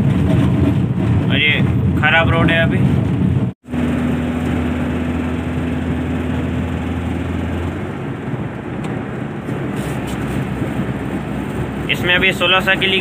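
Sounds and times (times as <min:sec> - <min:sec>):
tyre and road noise: 0:00.0 - 0:13.0
truck engine droning: 0:02.8 - 0:13.0.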